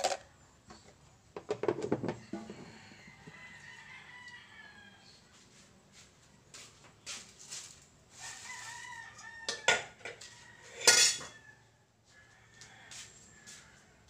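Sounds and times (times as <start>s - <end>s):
rooster crowing: 2.3s - 5.2s, 8.2s - 14.0s.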